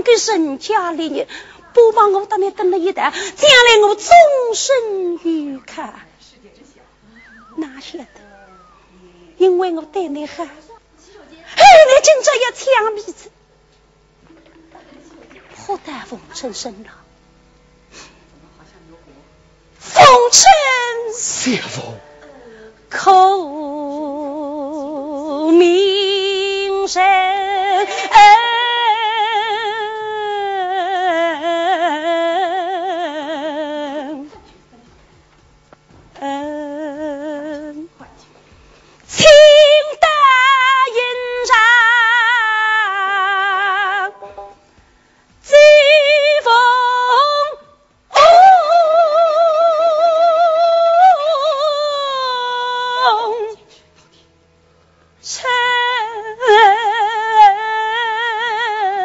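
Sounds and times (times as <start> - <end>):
woman singing with vibrato: 0.0 - 6.0, 7.1 - 10.8, 11.5 - 13.3, 19.8 - 34.5, 36.1 - 38.1, 39.1 - 44.2, 45.4 - 53.7, 55.2 - 59.0.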